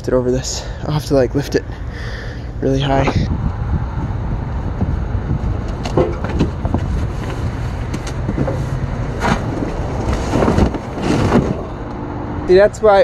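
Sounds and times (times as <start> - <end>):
road traffic rumble: 0.0 - 13.0
wind on microphone: 2.5 - 8.6
box scraping and knocking: 5.8 - 11.7.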